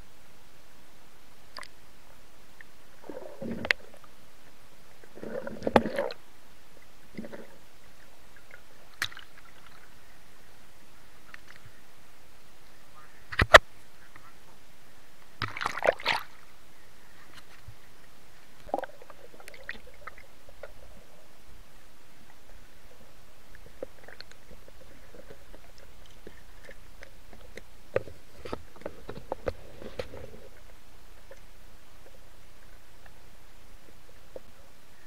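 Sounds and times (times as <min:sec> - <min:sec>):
muffled underwater clicks: 0:01.5 - 0:01.8, 0:03.4 - 0:03.8, 0:11.2 - 0:11.7, 0:12.6 - 0:14.3, 0:23.5 - 0:33.2
water splashing: 0:05.0 - 0:06.2, 0:08.3 - 0:10.0, 0:15.4 - 0:16.5, 0:18.4 - 0:21.2.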